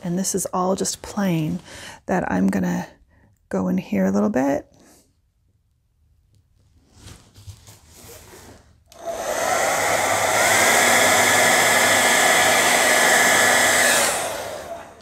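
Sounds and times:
hair dryer blowing: 0:08.9 - 0:15.0.

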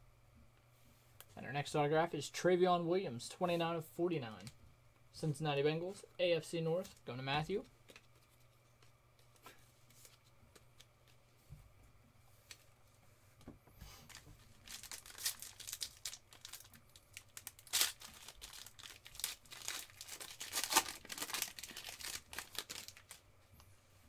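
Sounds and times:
foil wrapper tearing and crinkling: 0:14.1 - 0:23.2.

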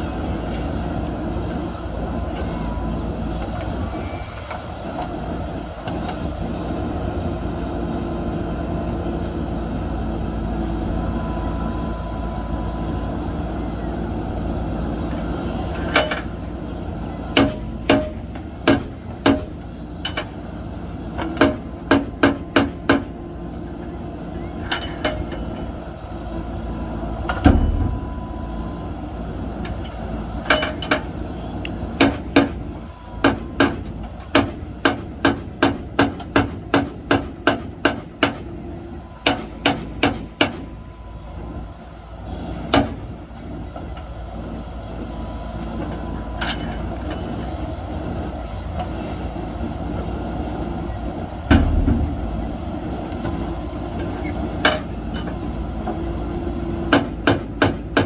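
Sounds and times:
diesel engine running under load: 0:00.0 - 0:58.0
heavy thud: 0:27.4 - 0:28.2, 0:51.5 - 0:52.5.

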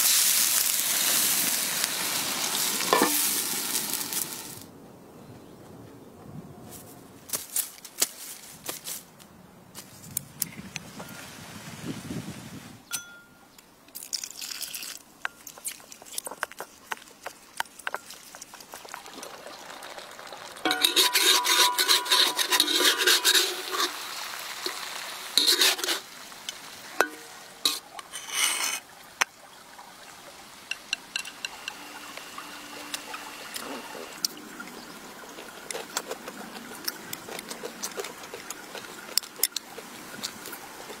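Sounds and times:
liquid-like noise: 0:00.0 - 0:04.7, 0:13.9 - 0:41.0.

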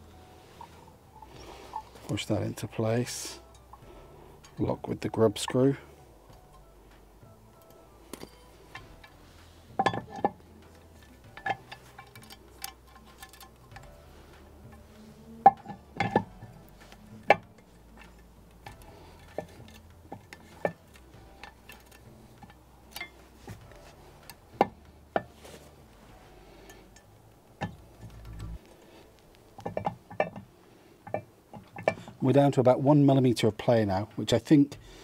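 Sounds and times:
wheel lock clicking and knocking: 0:15.4 - 0:25.4, 0:29.6 - 0:32.1.

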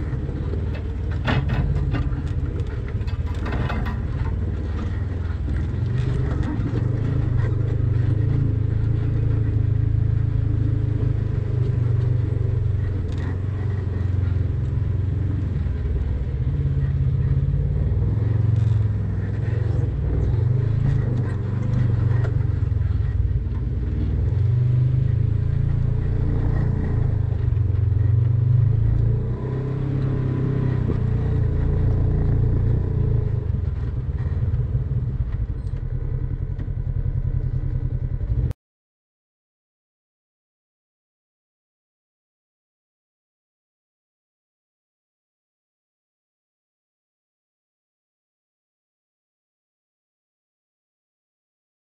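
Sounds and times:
vehicle knocks and rattles: 0:00.0 - 0:08.3
vehicle engine running: 0:00.0 - 0:38.6.

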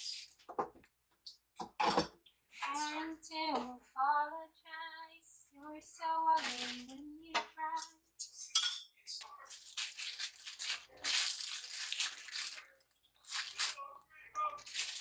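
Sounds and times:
rustling and crinkling: 0:09.2 - 0:13.8, 0:14.6 - 0:15.0.

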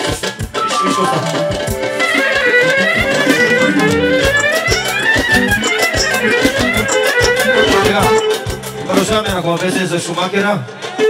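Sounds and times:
steady drum beat: 0:00.0 - 0:10.1
clarinet melody: 0:00.6 - 0:08.5.

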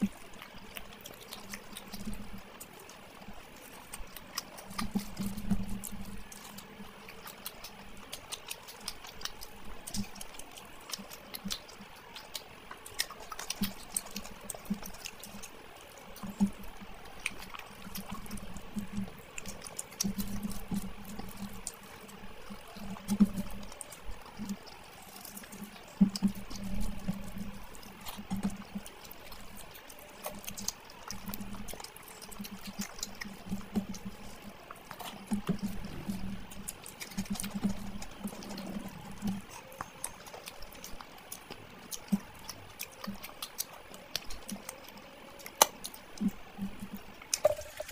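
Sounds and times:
chewing: 0:00.0 - 0:47.9
fingers squelching rice in gravy: 0:00.0 - 0:47.9
mouth smacks and clicks: 0:34.9 - 0:47.9.

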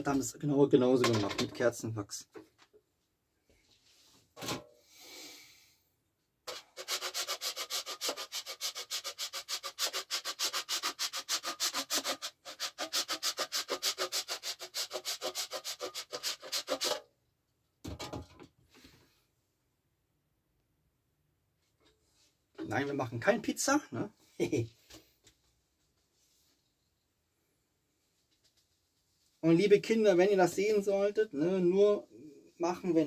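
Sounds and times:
candle wax grated on metal grater: 0:06.5 - 0:17.0.

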